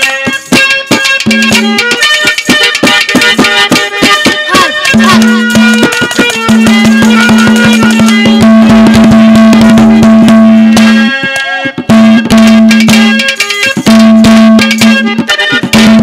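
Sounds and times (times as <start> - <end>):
fast drumming: 0.0 - 16.0
held melody note: 0.0 - 16.0.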